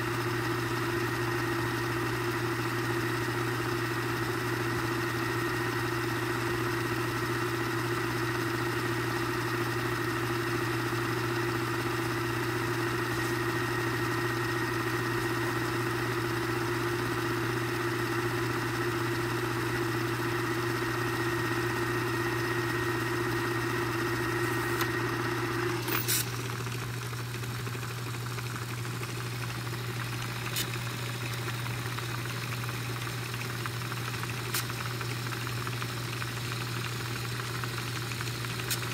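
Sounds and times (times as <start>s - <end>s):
tape drive whirring: 0.0s - 38.9s
tape duplicator motor hum: 0.0s - 38.9s
small click: 38.7s - 38.9s.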